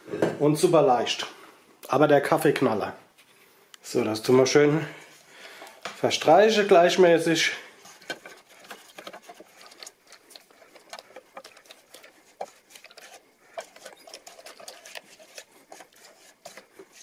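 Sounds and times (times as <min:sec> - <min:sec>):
spatula scraping cake batter: 0:06.1 - 0:17.0.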